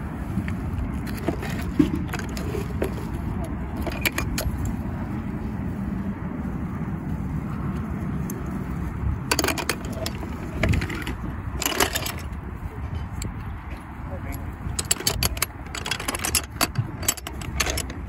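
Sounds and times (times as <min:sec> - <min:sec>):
parking lot rumble: 0:00.0 - 0:18.0
hard items clicking and clinking: 0:01.0 - 0:04.8, 0:09.3 - 0:12.4, 0:14.2 - 0:18.0.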